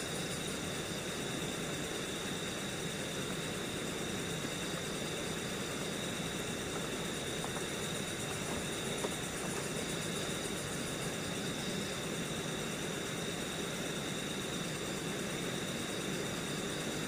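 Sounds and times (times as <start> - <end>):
stream water rushing: 6.5 - 11.1.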